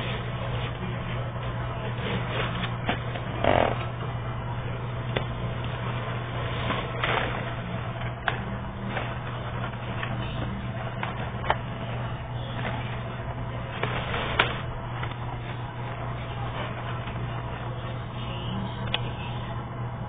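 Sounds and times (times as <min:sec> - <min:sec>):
low hum and hiss: 0:00.0 - 0:20.0
paper pages turning: 0:05.7 - 0:17.7.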